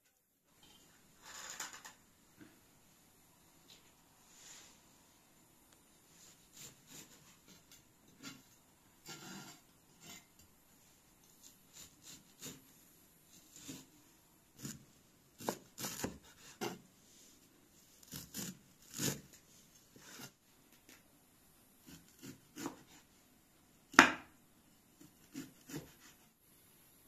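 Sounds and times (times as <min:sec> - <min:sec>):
knife chopping on wooden board: 0:15.4 - 0:16.8, 0:21.9 - 0:23.0, 0:23.9 - 0:24.3, 0:25.0 - 0:26.2.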